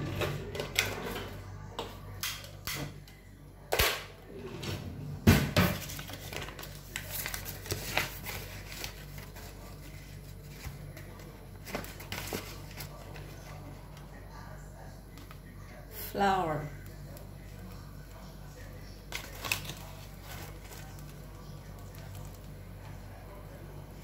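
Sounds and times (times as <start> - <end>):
low steady hum: 0.0 - 24.0
kitchen things knocking and clattering: 4.7 - 6.0.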